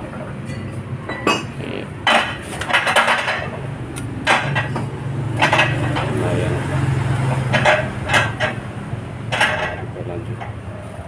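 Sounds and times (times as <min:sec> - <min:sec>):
metal clanks and knocks: 0:00.4 - 0:03.6, 0:04.2 - 0:06.3, 0:07.1 - 0:10.6.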